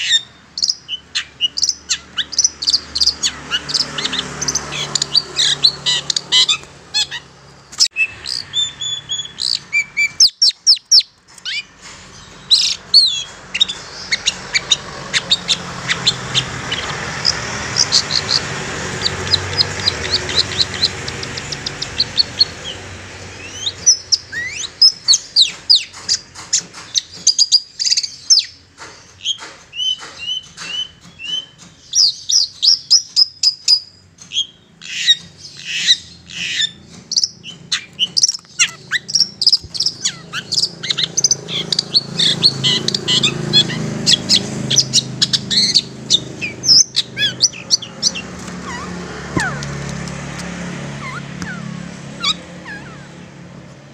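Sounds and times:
bird singing: 0.0 - 53.9.

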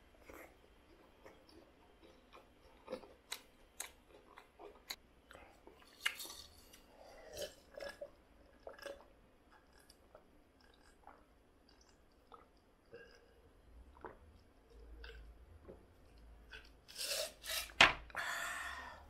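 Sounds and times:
person chewing noodles: 0.1 - 17.7.

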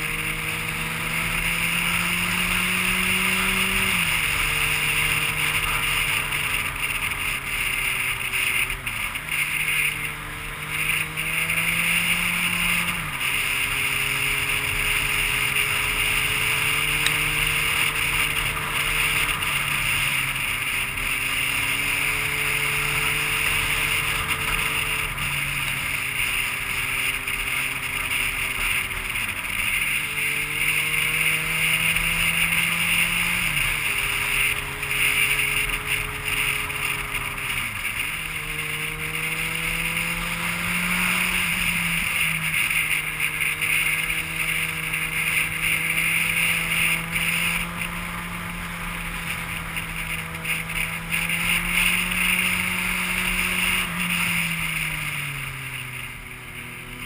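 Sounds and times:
vehicle engine running: 0.0 - 57.0.

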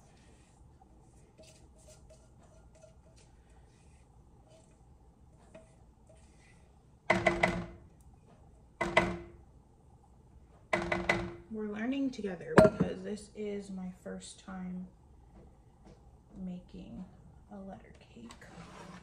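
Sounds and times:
spatula scraping batter in pan: 0.0 - 4.8, 5.4 - 6.7.

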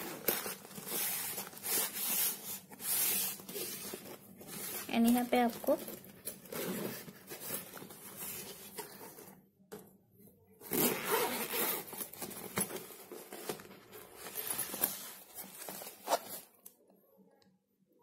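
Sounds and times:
bag zipper opening: 10.6 - 12.0
cloth rustling: 10.7 - 16.6.

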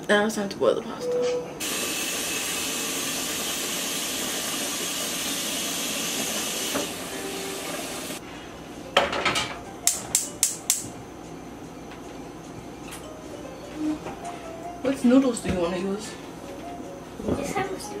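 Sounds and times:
tap water running into pot: 1.6 - 8.2
gas burner igniter clicks: 9.9 - 10.9.

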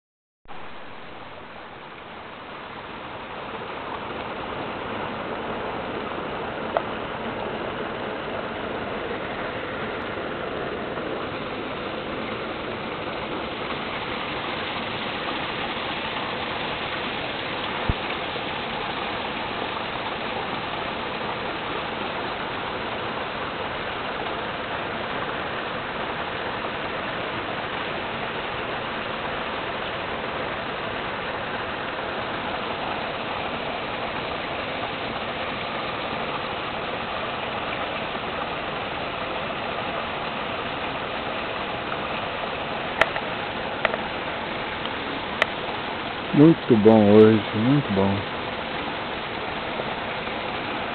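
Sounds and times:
stream rushing over rocks: 0.5 - 50.9.

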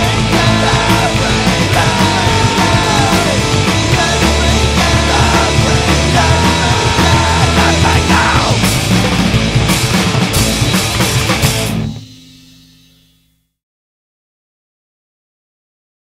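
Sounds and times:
loud punk rock band: 0.0 - 12.1.

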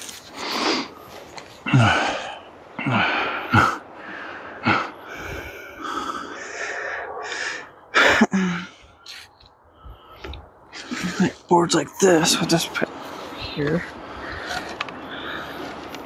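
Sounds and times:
person breathing hard: 0.2 - 11.5, 13.0 - 16.0
short grunts: 1.6 - 3.8
person gasping: 1.6 - 9.2.

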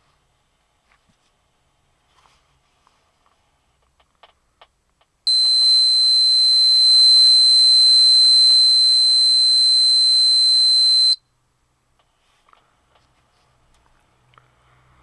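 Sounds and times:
electronic buzzer tone: 5.3 - 11.2.

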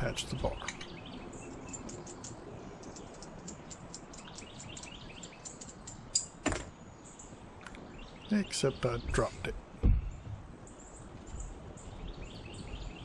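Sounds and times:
small birds chirping: 0.0 - 13.0
sharp knocks: 6.4 - 6.7, 9.8 - 10.4.

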